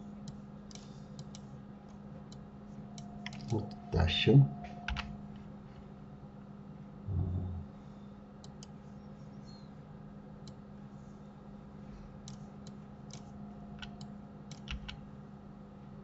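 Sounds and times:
low electrical hum: 0:00.0 - 0:16.0
computer mouse and keyboard clicks: 0:00.2 - 0:01.5, 0:03.0 - 0:03.8, 0:08.4 - 0:08.8, 0:12.2 - 0:15.0.

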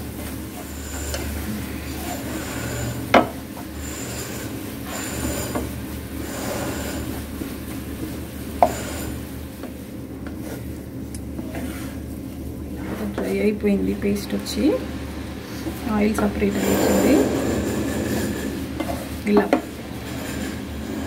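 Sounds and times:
spatula scraping a pan: 0:00.1 - 0:09.3, 0:11.4 - 0:12.1, 0:15.5 - 0:21.0.

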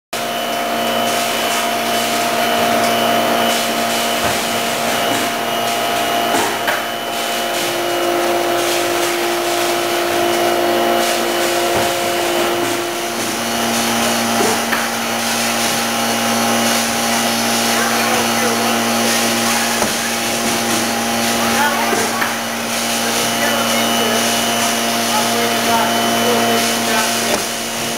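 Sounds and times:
packaging machine hum and whine: 0:00.2 - 0:27.9.

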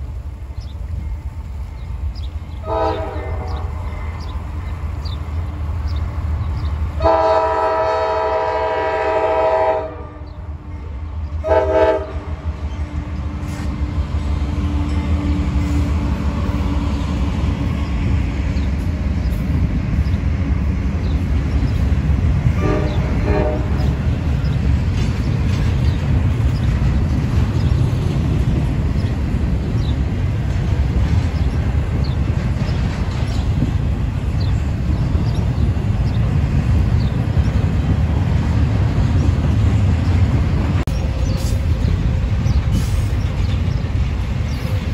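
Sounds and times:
train rolling past rumble: 0:00.0 - 0:44.9
train air horn blasts: 0:02.6 - 0:04.2, 0:07.0 - 0:12.4, 0:22.5 - 0:24.1.

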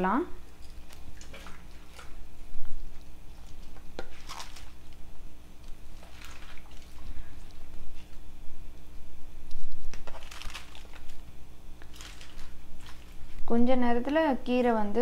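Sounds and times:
water splashing: 0:05.9 - 0:07.4
leaves rustling: 0:09.7 - 0:13.5.

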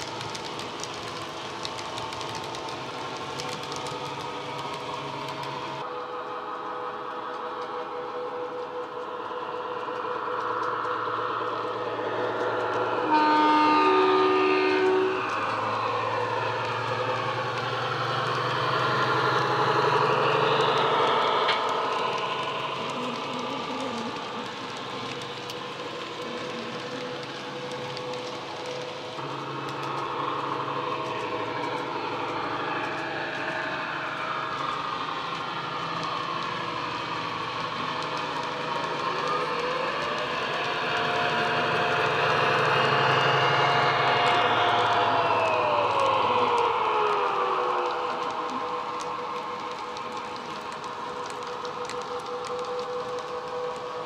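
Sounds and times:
model locomotive engine sound: 0:00.0 - 0:54.0
model train running on track: 0:00.0 - 0:54.0
two-tone train horn: 0:12.8 - 0:16.4
whine rising and falling: 0:14.8 - 0:54.0.

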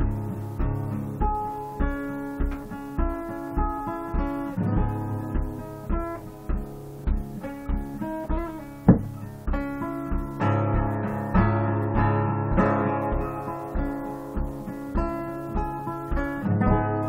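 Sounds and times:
acoustic guitar picking: 0:00.0 - 0:17.0
steady low beat: 0:00.0 - 0:17.0
sharp knock: 0:02.4 - 0:10.9.

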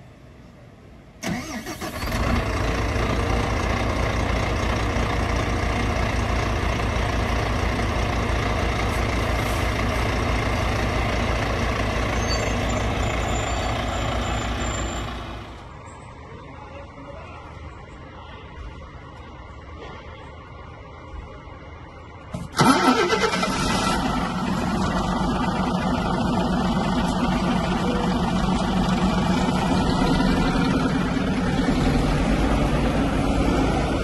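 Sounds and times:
bus diesel engine starting and idling: 0:01.1 - 0:15.8, 0:22.2 - 0:34.0.

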